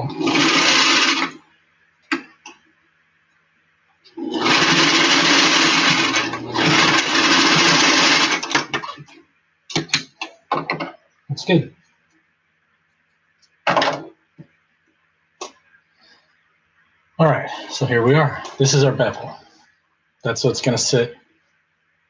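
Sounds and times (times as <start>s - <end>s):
electric sewing machine stitching: 0.0s - 1.4s, 4.2s - 9.0s.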